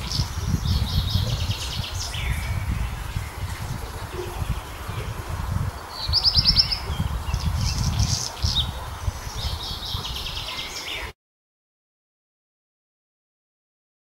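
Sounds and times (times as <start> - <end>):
wind rumble on microphone: 0.0 - 11.1
bird singing: 0.0 - 11.2.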